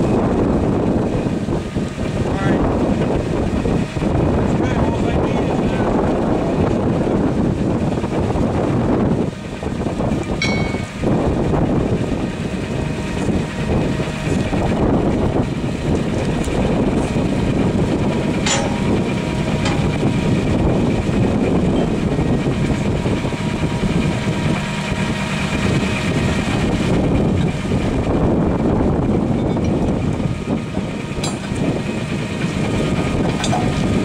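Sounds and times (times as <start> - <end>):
heavy vehicle engine idling: 0.0 - 34.0
hand tools clinking on metal: 10.4 - 11.0, 18.4 - 19.0.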